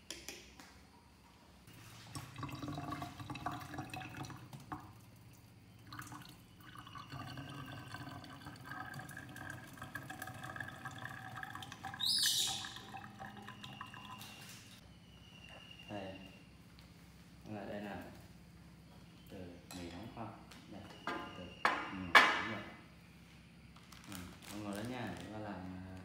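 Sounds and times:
water trickling and dripping: 1.7s - 14.8s.

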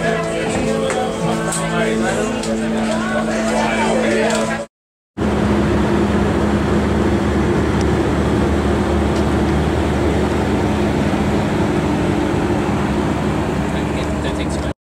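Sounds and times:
car engine idling: 5.2s - 14.7s.

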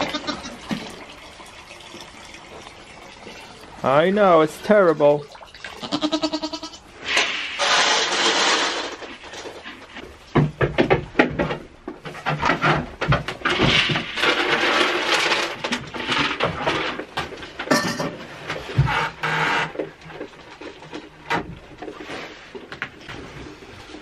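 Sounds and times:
rustling and clatter: 7.1s - 24.0s
goat hooves knocking on wood: 10.3s - 13.4s.

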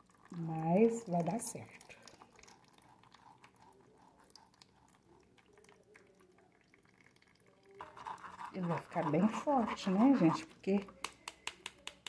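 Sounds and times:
fruit pulp squishing through sieve: 7.6s - 12.0s.

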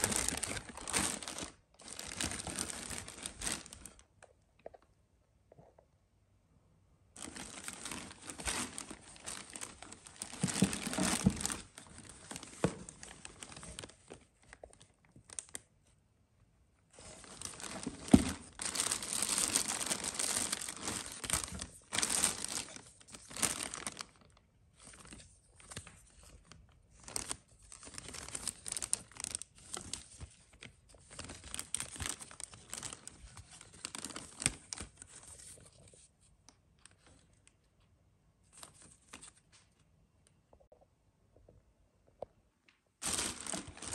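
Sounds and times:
plastic bags crinkling: 0.0s - 4.0s, 7.2s - 15.6s, 17.0s - 35.9s, 43.0s - 43.9s.

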